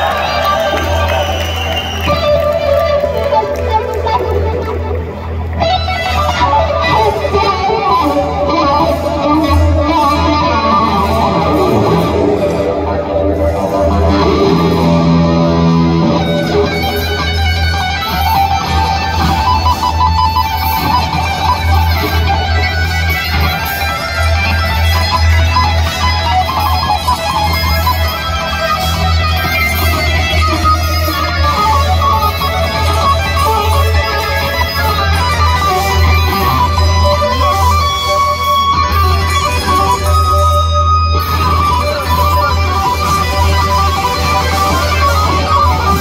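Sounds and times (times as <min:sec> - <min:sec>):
bass guitar: 0:00.0 - 0:46.0
drums: 0:00.0 - 0:46.0
electric guitar lead: 0:00.0 - 0:46.0.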